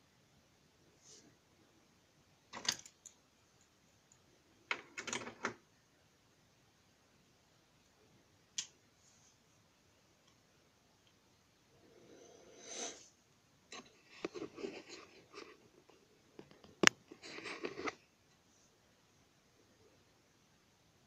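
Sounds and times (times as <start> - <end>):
faint room hiss: 0.0 - 21.0.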